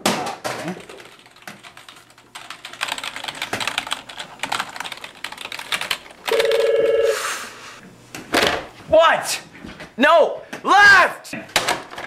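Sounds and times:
fast keyboard typing: 0.8 - 7.0
desk telephone ringing: 6.3 - 7.2.

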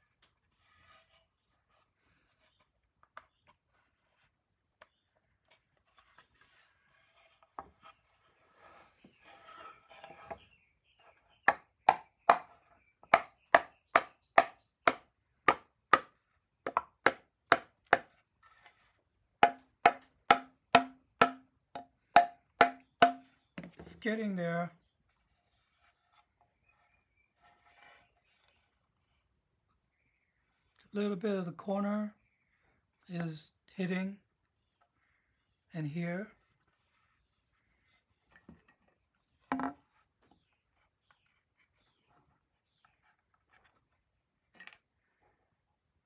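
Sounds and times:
rubbing of wooden parts: 0.1 - 11.5, 17.9 - 20.1, 25.1 - 29.3
sharp wooden knocks: 11.5 - 18.1, 19.4 - 23.3, 39.5 - 39.8.

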